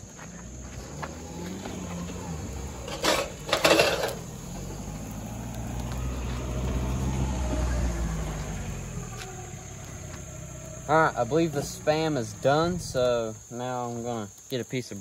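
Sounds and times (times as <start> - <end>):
car engine running: 0.5 - 13.5.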